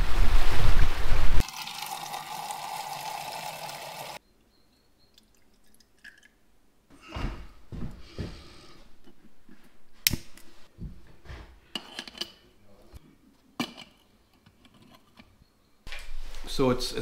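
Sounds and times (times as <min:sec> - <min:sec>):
stream flowing: 0:00.0 - 0:04.2
outdoor wind: 0:00.0 - 0:16.5
water trickling into metal mug: 0:01.4 - 0:04.2, 0:05.1 - 0:06.4.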